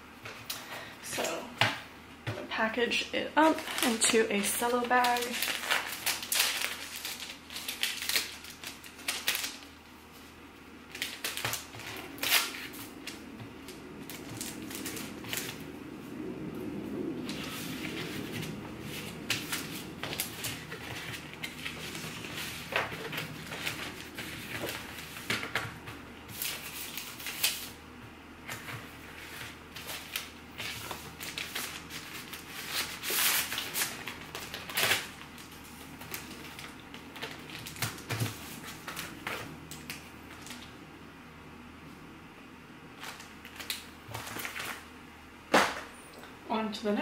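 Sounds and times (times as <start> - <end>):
plastic bag crinkling: 3.4 - 9.8, 28.5 - 40.7
paper mailer rustling: 3.4 - 15.7, 17.2 - 27.8, 28.4 - 40.7.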